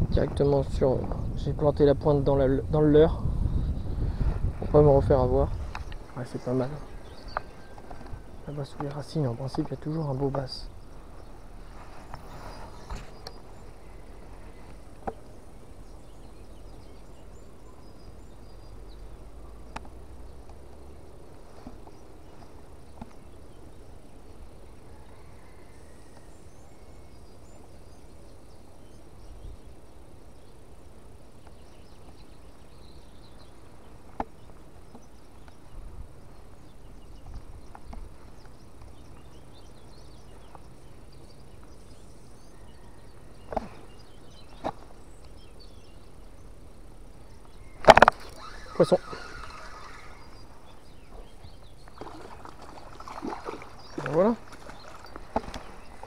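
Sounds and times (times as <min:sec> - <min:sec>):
fishing reel whirring: 0:48.2 - 0:50.3.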